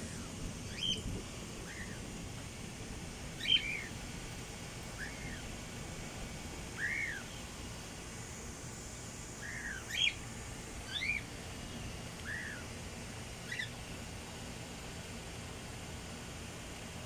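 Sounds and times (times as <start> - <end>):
low background noise: 0.0 - 17.0
cockatiels whistled calls: 0.7 - 1.0, 1.7 - 2.0, 3.4 - 3.9, 5.0 - 5.4, 6.8 - 7.3, 9.4 - 10.2, 10.9 - 11.2, 12.2 - 12.6, 13.4 - 13.8.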